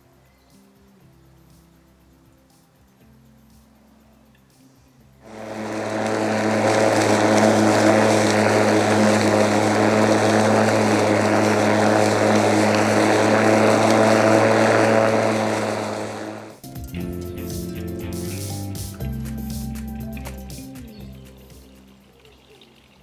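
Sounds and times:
lawn mower running: 5.2 - 21.9.

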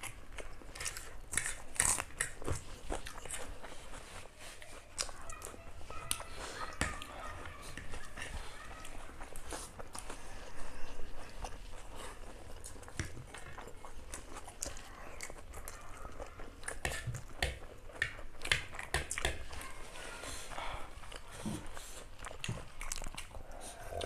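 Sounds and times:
people slurping noodles: 23.2 - 24.0.

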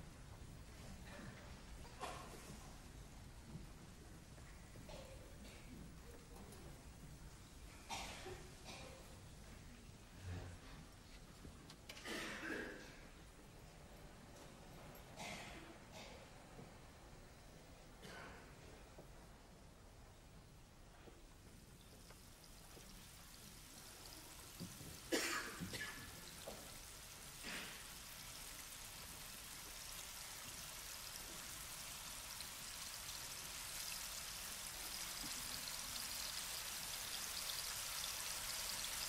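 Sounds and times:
rain-like patter and hiss: 0.0 - 12.1, 20.8 - 39.0.

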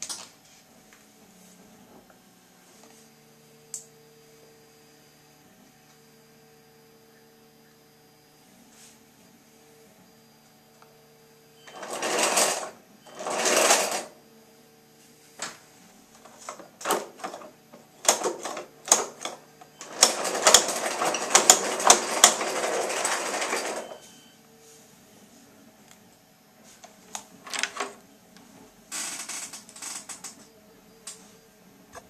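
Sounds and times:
plastic gears whirring and rattling: 11.7 - 14.1, 16.2 - 24.0.

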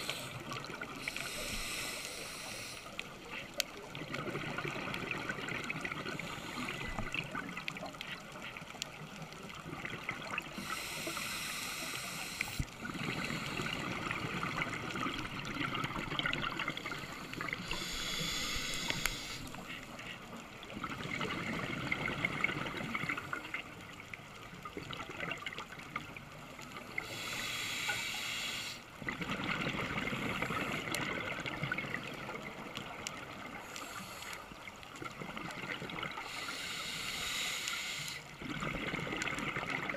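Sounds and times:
regulator hissing: 1.0 - 2.9, 17.0 - 19.6
exhaled air bubbling: 9.4 - 19.8, 29.0 - 33.7, 38.3 - 39.9.

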